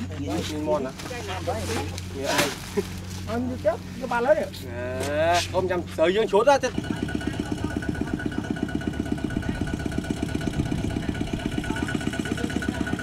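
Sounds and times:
diesel engine putter: 0.0s - 13.0s.

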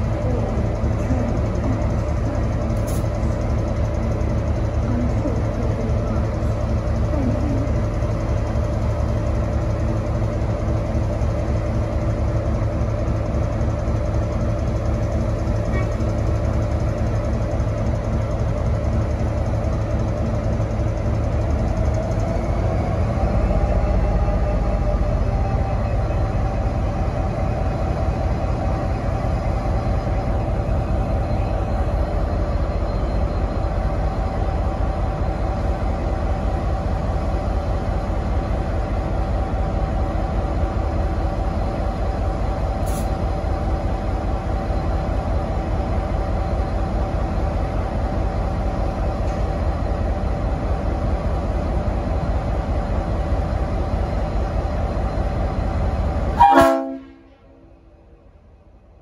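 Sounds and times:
locomotive engine idling: 0.0s - 58.6s
locomotive horn blast: 56.4s - 57.6s.

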